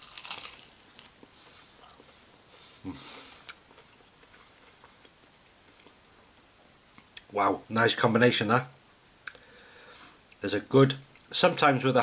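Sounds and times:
crunchy bite of fried chicken: 0:00.0 - 0:01.3.

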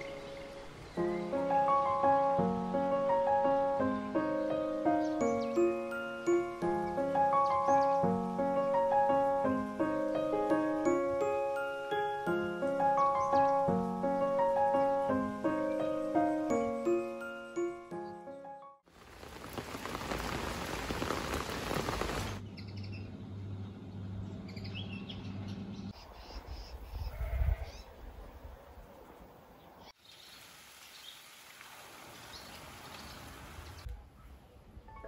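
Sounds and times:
small birds chirping: 0:00.0 - 0:09.2, 0:13.0 - 0:17.3, 0:21.1 - 0:28.1, 0:29.5 - 0:31.3, 0:32.1 - 0:34.3.

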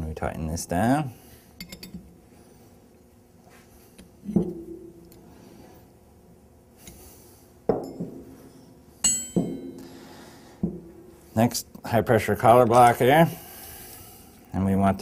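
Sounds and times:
wrench ringing: 0:09.0 - 0:09.9.

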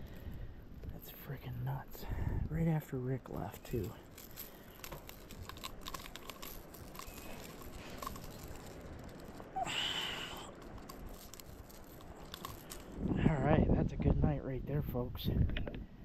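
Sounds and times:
net rustling and small clicks: 0:03.2 - 0:13.1.

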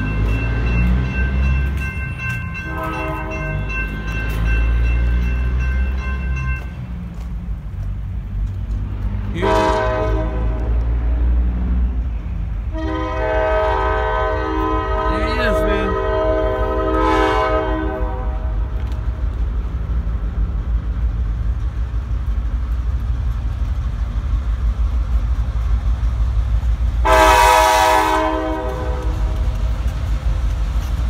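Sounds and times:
locomotive air horn: 0:02.6 - 0:03.6, 0:09.4 - 0:10.8, 0:12.7 - 0:18.6, 0:27.0 - 0:29.4.

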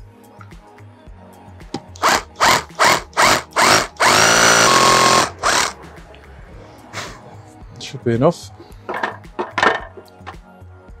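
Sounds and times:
hammer drill drilling into brick: 0:02.0 - 0:05.8.

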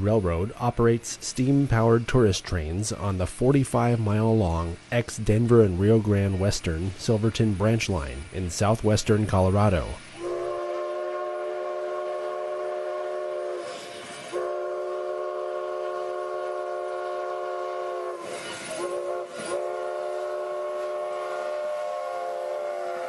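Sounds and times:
steam hissing: 0:00.0 - 0:23.0
steam whistle blasts: 0:10.0 - 0:23.0.

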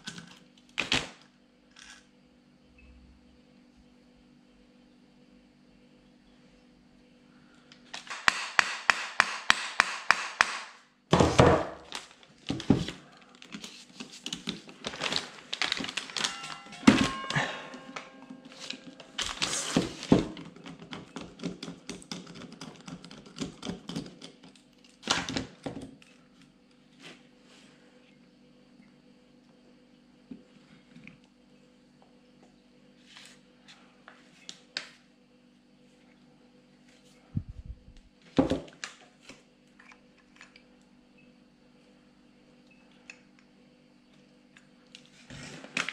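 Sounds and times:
metal knocks and clatter: 0:15.0 - 0:20.4.

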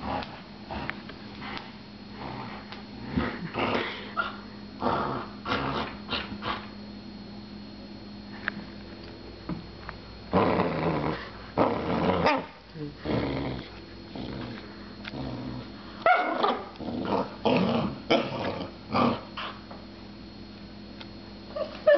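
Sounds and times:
puppy growling: 0:00.0 - 0:06.7, 0:10.3 - 0:19.6.

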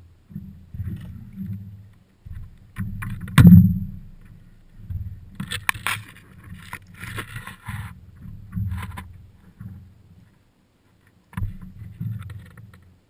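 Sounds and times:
paddle striking board: 0:00.0 - 0:10.0, 0:11.3 - 0:12.9
water knocking under paddleboard: 0:00.0 - 0:10.2, 0:11.3 - 0:12.9
rope rustling and clicking: 0:04.2 - 0:13.0.

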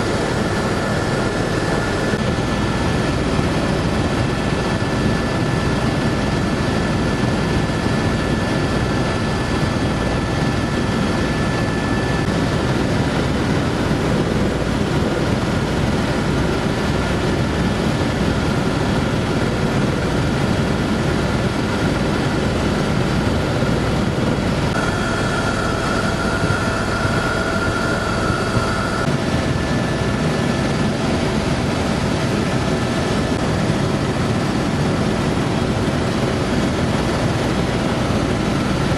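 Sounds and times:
helicopter engine and rotor drone: 0:00.0 - 0:38.9
thin high whine: 0:24.6 - 0:30.4.

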